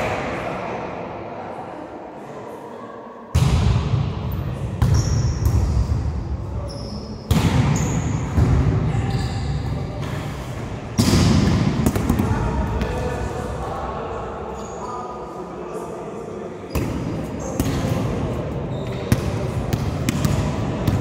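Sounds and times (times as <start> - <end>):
volleyball slaps echoing: 3.3 - 6.2, 7.3 - 8.8, 10.8 - 13.1, 16.7 - 18.3, 18.9 - 21.0.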